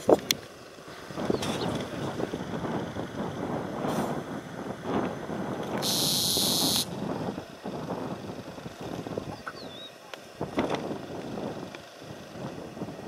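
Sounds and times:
low outdoor rumble: 0.0s - 13.0s
high hiss: 5.8s - 6.9s.

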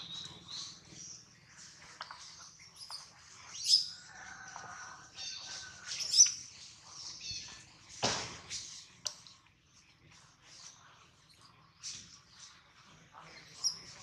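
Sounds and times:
animal chirps and squeaks: 0.0s - 4.1s, 5.1s - 7.6s, 13.2s - 14.0s.

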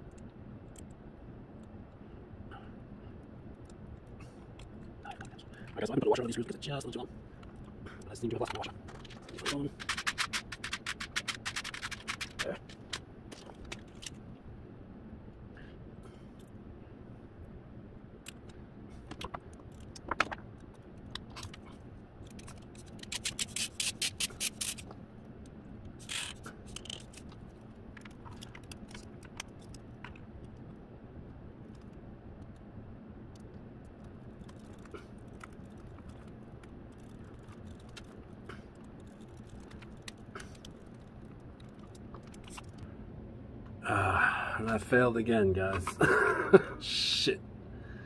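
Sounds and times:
faint steady hum: 0.0s - 48.0s
light clicks and scrapes: 7.4s - 14.2s, 25.9s - 30.8s, 33.4s - 42.9s
run of sharp clicks: 8.4s - 14.2s.

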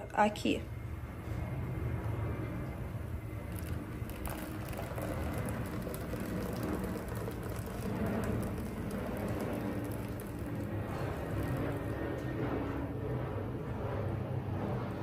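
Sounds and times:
steady low hum: 0.0s - 15.0s
batter pouring splashing trickle: 3.2s - 12.0s.

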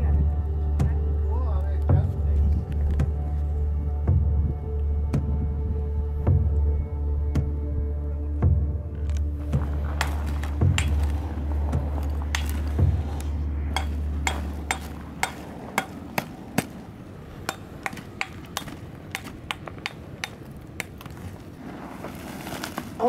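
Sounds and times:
low rumble: 0.0s - 18.2s
metal tool striking rock: 10.0s - 11.1s, 12.3s - 12.7s, 13.8s - 16.7s, 17.4s - 21.1s.

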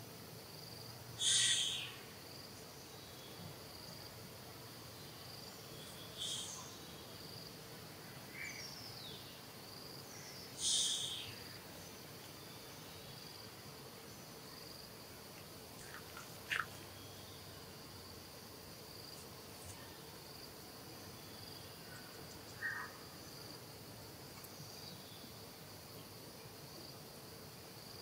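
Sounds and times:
insects buzzing drone: 0.0s - 28.0s
loud high-pitched calls: 1.2s - 2.0s, 10.6s - 11.4s.

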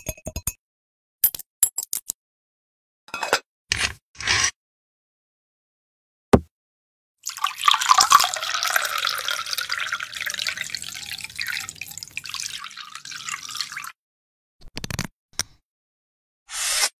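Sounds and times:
liquor pouring into glass jar: 7.2s - 13.9s.

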